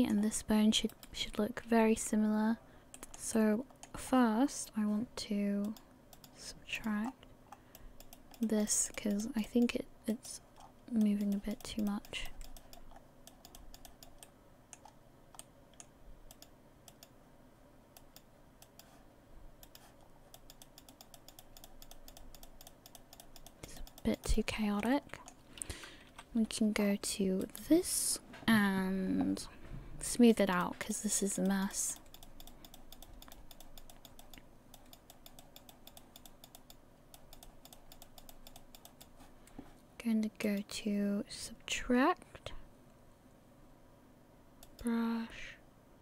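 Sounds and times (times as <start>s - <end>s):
computer mouse clicking: 0.8s - 1.3s, 2.9s - 4.0s, 5.6s - 9.8s, 10.6s - 17.2s, 17.9s - 19.0s, 19.6s - 26.5s, 27.4s - 27.8s, 30.5s - 39.7s, 44.6s - 44.9s.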